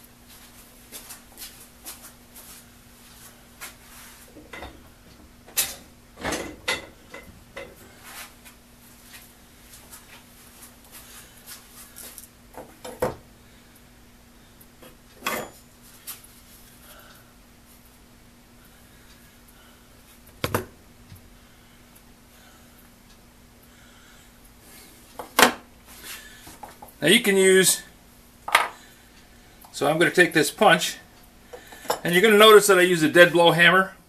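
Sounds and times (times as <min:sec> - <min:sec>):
faint steady hum: 0:00.0 - 0:34.0
hammer laid on wooden bench: 0:28.5 - 0:28.8.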